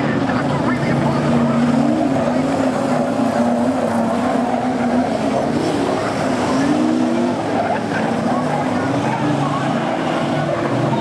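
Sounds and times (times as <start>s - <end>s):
race car engines droning: 0.0s - 11.0s.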